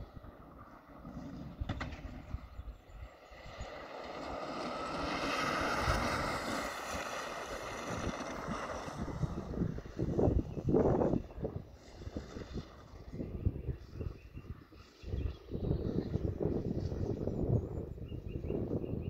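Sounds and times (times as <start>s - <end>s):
electric kart motor whine: 0.0s - 19.0s
wind buffeting microphone: 0.0s - 19.0s.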